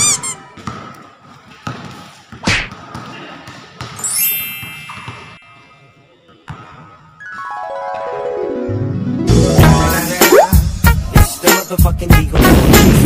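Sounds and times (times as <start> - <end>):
basketball bouncing on concrete: 0.5 - 4.0.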